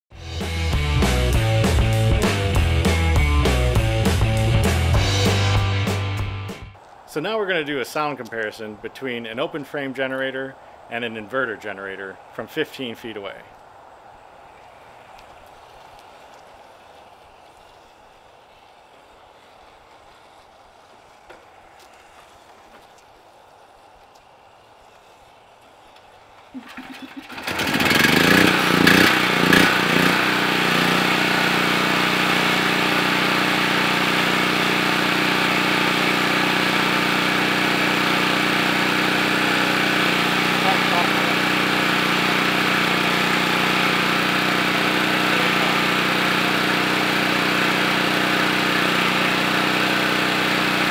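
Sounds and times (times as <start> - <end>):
generator engine running: 0.1 - 6.8, 26.5 - 50.9
faint outdoor background: 0.2 - 29.7.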